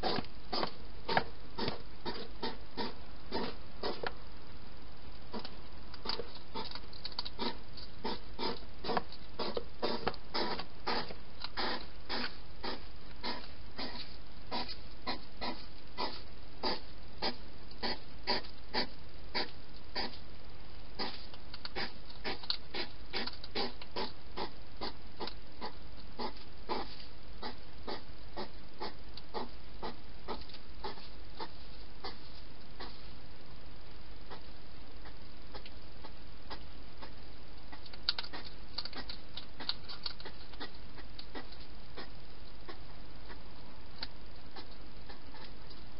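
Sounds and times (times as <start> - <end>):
hedgehog chewing clicks: 5.3 - 13.9, 37.7 - 42.1.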